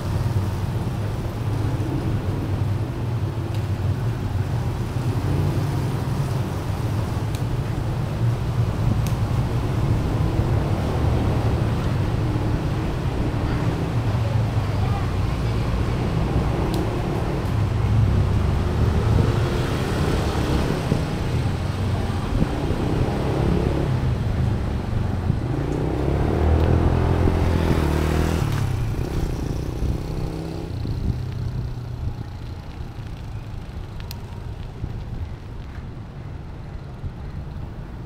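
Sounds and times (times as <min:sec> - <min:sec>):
vehicle engines running: 0:00.0 - 0:38.0
vehicle accelerating: 0:09.3 - 0:32.6.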